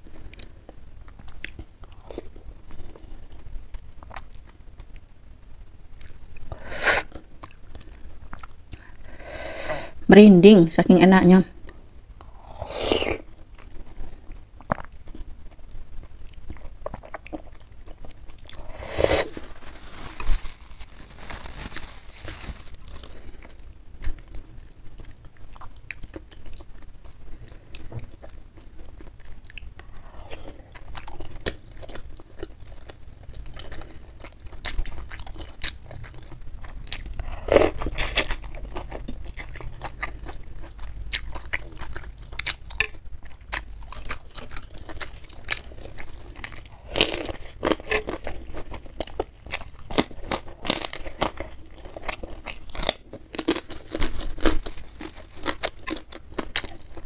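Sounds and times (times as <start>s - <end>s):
wet chewing and crunching: 11.7s - 57.0s.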